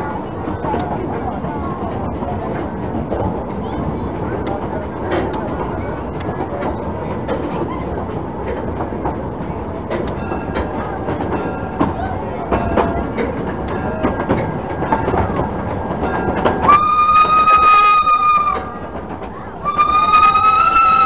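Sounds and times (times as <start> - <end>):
train coaches rumbling: 0.0 - 21.0
steam whistle: 16.7 - 18.7, 19.6 - 21.0.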